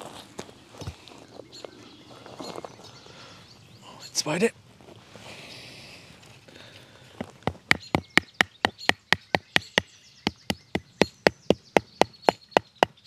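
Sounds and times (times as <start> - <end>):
hammering tent peg into ground: 7.2 - 13.0.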